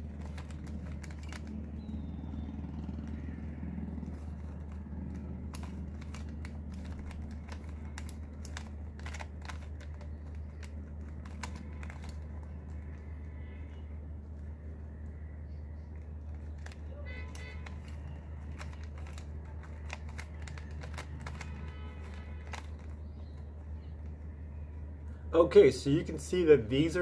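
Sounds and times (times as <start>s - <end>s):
puzzle cube clicking as twisted: 0.0s - 13.1s, 16.3s - 24.1s.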